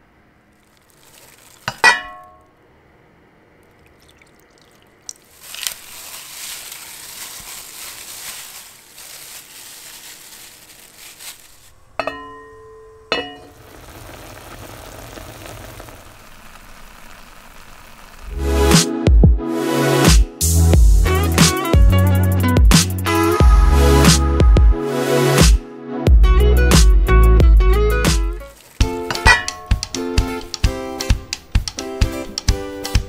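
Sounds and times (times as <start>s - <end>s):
sauce simmering and bubbling: 0.6s - 1.8s, 3.7s - 5.4s, 13.5s - 18.2s
wet hissing meat handling: 0.6s - 1.8s, 4.3s - 11.8s, 28.5s - 29.1s
ringing clink on a pot: 12.0s - 13.5s.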